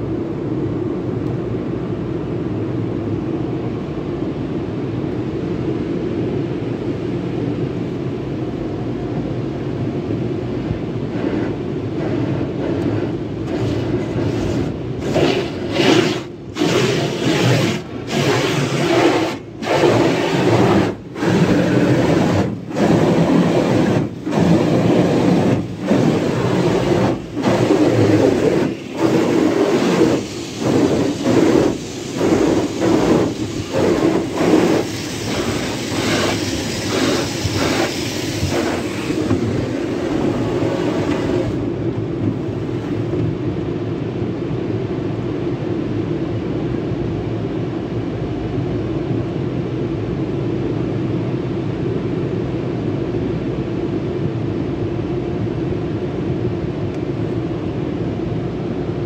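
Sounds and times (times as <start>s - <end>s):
water spray hitting car: 11.1s - 41.7s.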